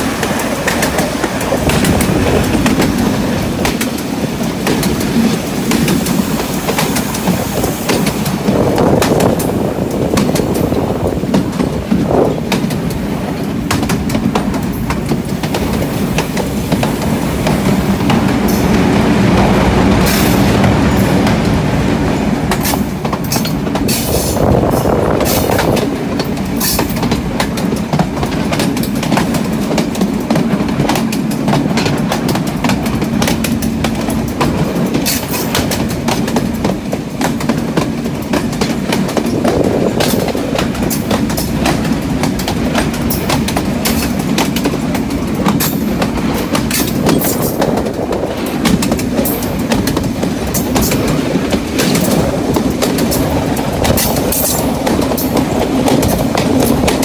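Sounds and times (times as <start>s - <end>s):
wheels clattering over rail joints: 0.0s - 57.0s.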